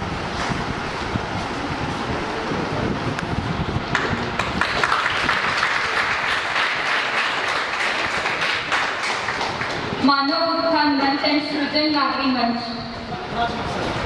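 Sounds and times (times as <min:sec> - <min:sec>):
audience applauding: 0:03.9 - 0:10.0.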